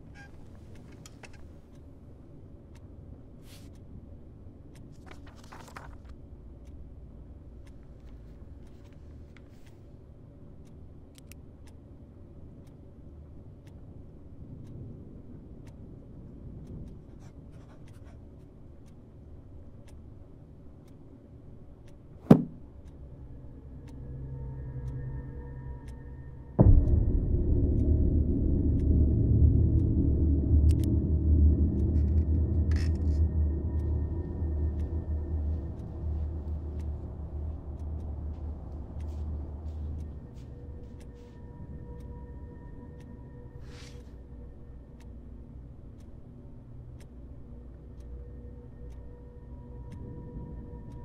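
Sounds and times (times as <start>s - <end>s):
low steady hum: 0.0s - 51.0s
paper pages rustling: 5.0s - 6.2s
clock ticking: 10.5s - 51.0s
low rumbling drone: 22.7s - 51.0s.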